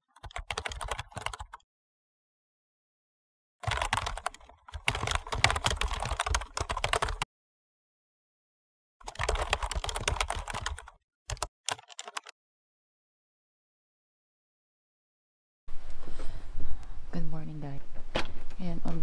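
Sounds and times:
computer keyboard typing: 0.0s - 1.6s, 3.6s - 7.3s, 9.0s - 12.3s.

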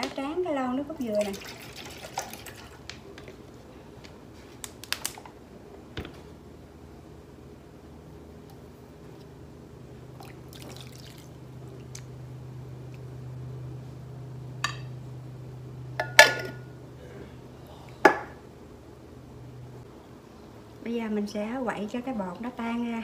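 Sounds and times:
liquid pouring and dripping: 10.2s - 12.1s.

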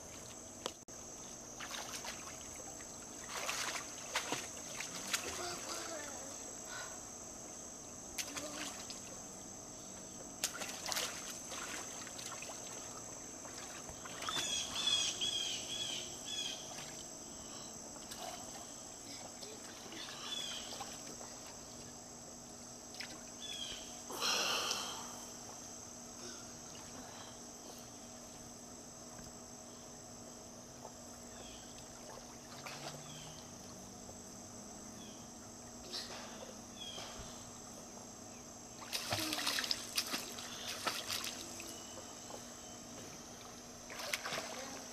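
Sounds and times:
high insect drone: 0.0s - 44.9s
water splashing in a pool: 1.6s - 6.3s, 8.2s - 9.2s, 10.4s - 15.2s, 19.4s - 22.0s, 22.9s - 23.4s, 31.7s - 33.8s, 38.7s - 41.8s, 43.3s - 44.9s.

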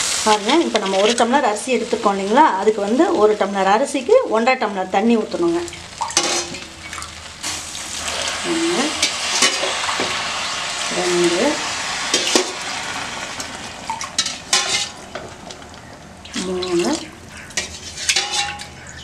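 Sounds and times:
water hissing on hot food: 0.0s - 3.6s, 5.4s - 18.9s
steel vessels clinking: 14.0s - 15.6s, 16.3s - 19.0s.

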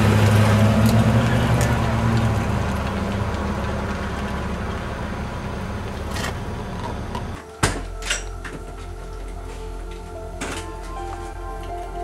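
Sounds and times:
vehicle engine idling: 0.0s - 7.4s
outdoor noise: 0.0s - 12.0s.

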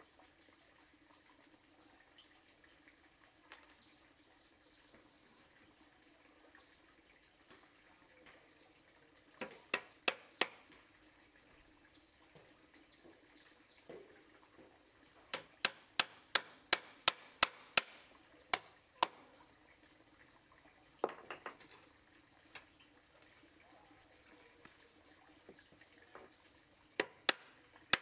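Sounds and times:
tool striking wood: 9.7s - 10.6s, 15.3s - 19.2s, 27.0s - 28.0s.

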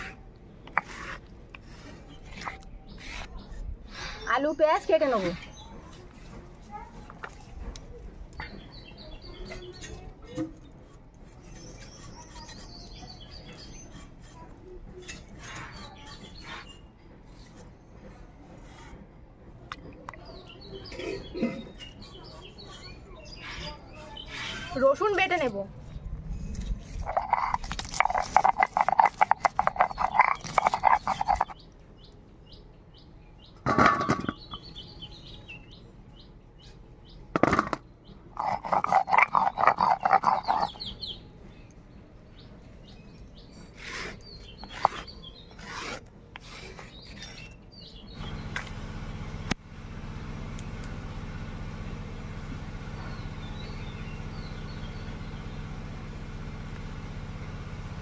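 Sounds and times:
stone roller scraping grinding stone: 0.0s - 3.6s, 9.4s - 17.7s, 20.6s - 31.6s, 33.6s - 34.7s, 37.4s - 41.2s, 42.9s - 48.1s
bird calling: 38.4s - 41.2s.

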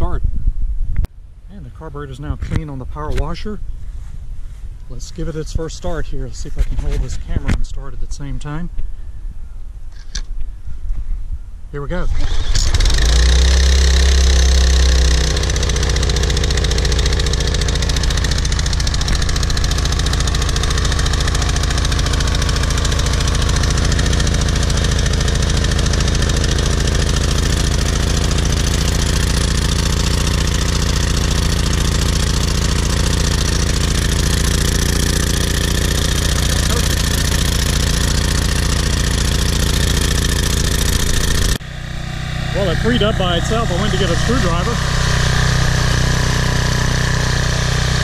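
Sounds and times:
pressure washer engine running: 12.2s - 48.0s.

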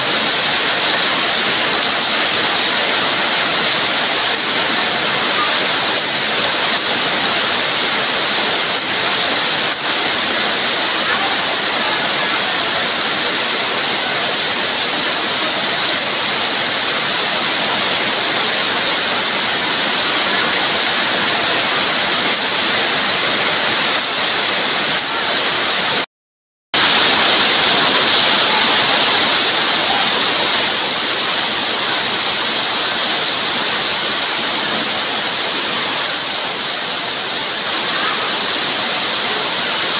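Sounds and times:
heavy rain pouring: 0.0s - 26.1s, 26.8s - 39.9s.

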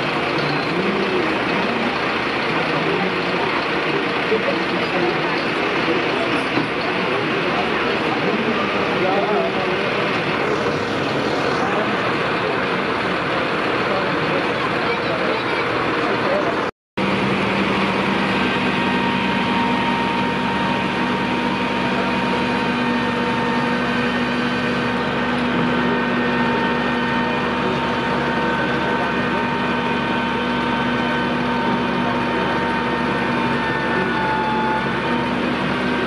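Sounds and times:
engine hum: 0.0s - 36.0s
high whine: 7.1s - 15.0s, 16.0s - 36.0s.

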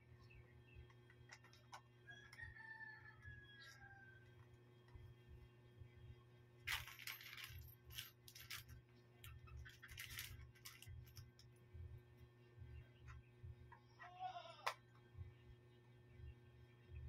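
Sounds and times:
low steady hum: 0.0s - 17.0s
rustling handling noises: 6.7s - 11.6s.

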